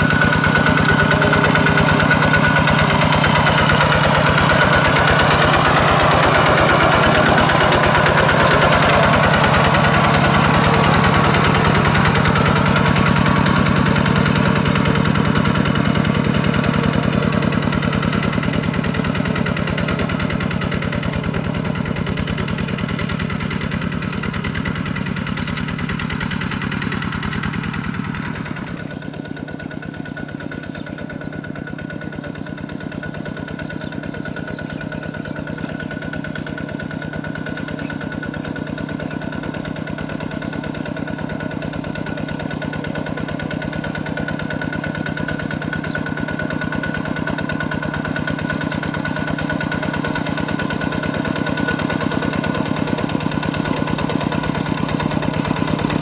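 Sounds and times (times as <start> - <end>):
diesel tractor engine running: 0.0 - 56.0
wheels plowing through mud: 0.0 - 56.0.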